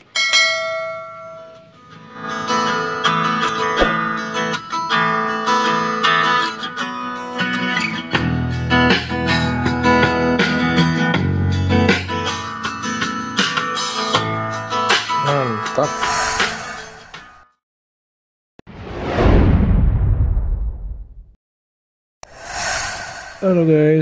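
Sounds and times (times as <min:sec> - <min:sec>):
bell-like chime: 0:00.1 - 0:01.8
guitar instrumental music: 0:01.8 - 0:15.8.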